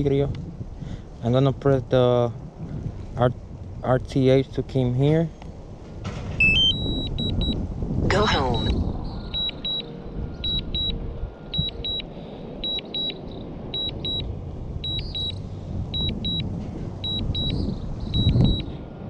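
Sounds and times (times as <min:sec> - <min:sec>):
low rumbling noise: 0:00.0 - 0:19.0
remote controller double beeps: 0:06.4 - 0:07.6, 0:08.4 - 0:12.0, 0:12.6 - 0:13.2, 0:13.8 - 0:15.4, 0:17.0 - 0:18.7.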